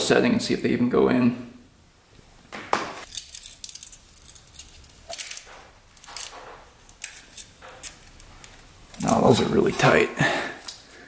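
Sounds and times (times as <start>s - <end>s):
metal feeler gauges clinking: 3.1s - 10.0s.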